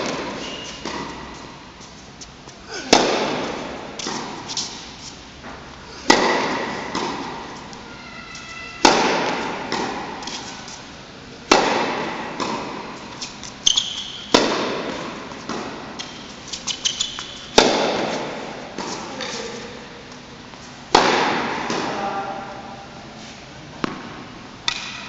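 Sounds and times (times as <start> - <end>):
ball bouncing: 0.0 - 1.4, 5.4 - 10.5, 13.7 - 19.0, 23.8 - 25.0
tennis racket hitting ball: 0.0 - 1.9, 2.8 - 10.8, 11.4 - 19.6, 20.9 - 22.5, 23.8 - 25.0.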